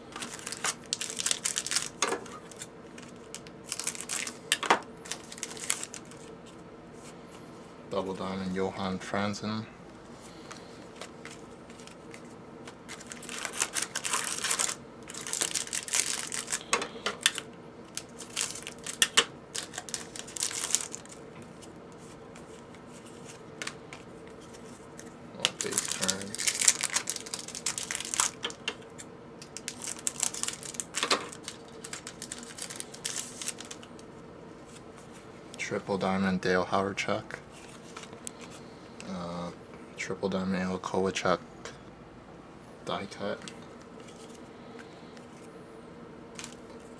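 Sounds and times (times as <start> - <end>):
foil wrappers crinkling and tearing: 0.0 - 6.4, 10.3 - 28.8, 29.4 - 34.1, 46.3 - 46.9.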